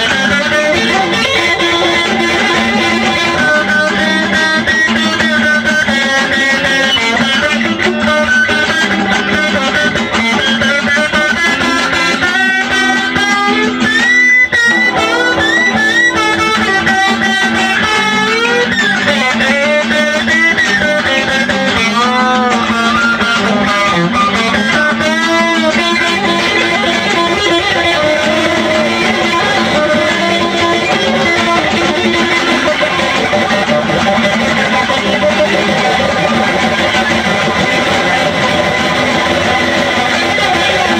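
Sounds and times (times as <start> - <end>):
electric guitar with pitch bends: 0.0 - 40.9
sustained low note: 14.7 - 17.4.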